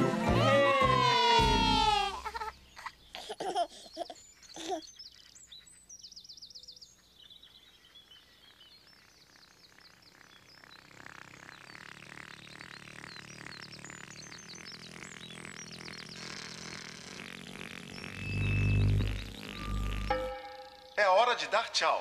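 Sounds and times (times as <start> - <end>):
birds chirping: 0.0 - 22.0
baby giggling: 1.2 - 4.9
bird high trill: 11.5 - 21.4.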